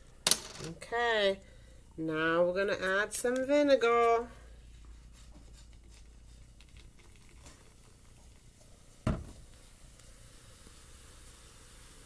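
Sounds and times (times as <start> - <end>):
liquid pouring into bottle: 6.0 - 9.0
thump: 9.0 - 9.4.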